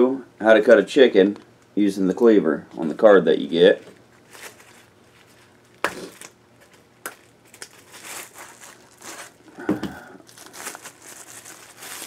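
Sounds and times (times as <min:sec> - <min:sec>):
plastic packaging crinkling: 0:03.7 - 0:12.0.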